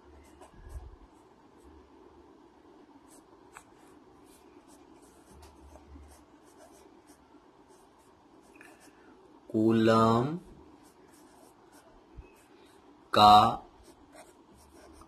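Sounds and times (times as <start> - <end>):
pen scratching on paper: 3.1 - 9.0, 10.8 - 12.6, 13.8 - 15.0.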